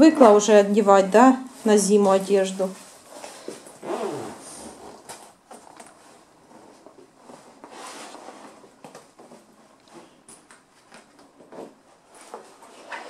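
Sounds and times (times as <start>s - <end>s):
nylon jacket rustling: 2.7s - 10.2s, 10.8s - 13.0s.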